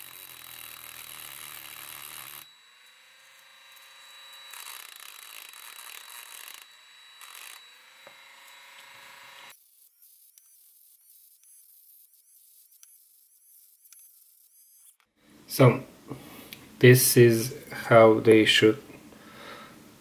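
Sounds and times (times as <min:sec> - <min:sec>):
rotary tool whining: 0:00.0 - 0:15.2.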